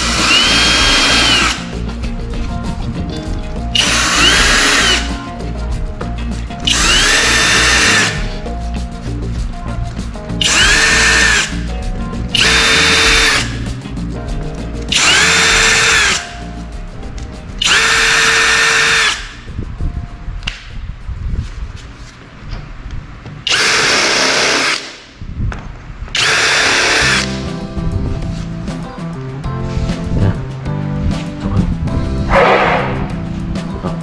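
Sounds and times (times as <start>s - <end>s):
electric drill whining: 0.0s - 1.7s, 3.8s - 5.2s, 6.6s - 8.4s, 10.4s - 11.6s, 12.4s - 13.6s, 14.9s - 16.3s, 17.6s - 19.4s, 23.5s - 25.0s, 26.2s - 27.4s.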